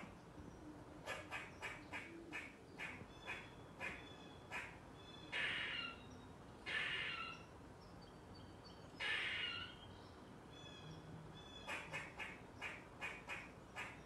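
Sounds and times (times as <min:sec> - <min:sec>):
squirrel alarm calls: 0:01.1 - 0:07.5, 0:09.0 - 0:09.9, 0:10.5 - 0:14.0.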